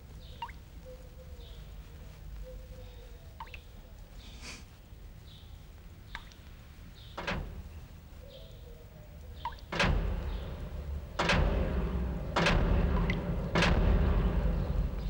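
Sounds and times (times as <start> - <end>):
heavy echoing thuds: 7.1 - 8.3, 9.6 - 15.0
low rumble: 7.2 - 8.1, 9.7 - 15.0.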